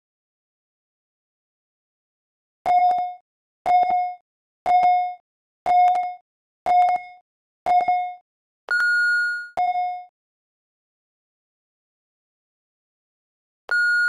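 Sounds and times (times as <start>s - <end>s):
interval timer short beeps: 2.7s - 10.0s, 13.7s - 14.0s.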